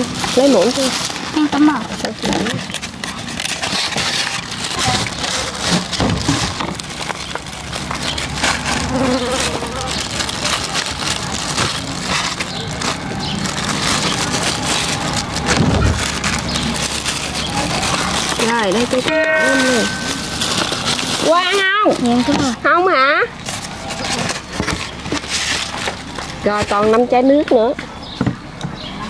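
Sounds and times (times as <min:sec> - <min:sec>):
plastic gloves and foam boxes rustling: 0:00.0 - 0:28.2.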